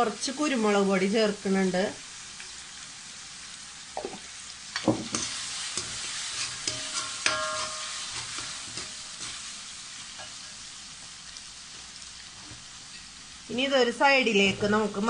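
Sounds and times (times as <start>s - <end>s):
vegetables sizzling in hot oil: 0.0s - 15.0s
ladle clinking and scraping wok: 4.7s - 10.6s.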